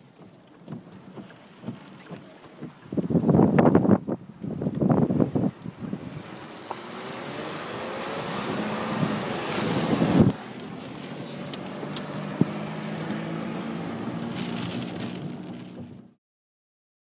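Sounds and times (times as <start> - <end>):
car engine humming: 0.0 - 16.2
wind rushing over microphone: 2.9 - 16.1.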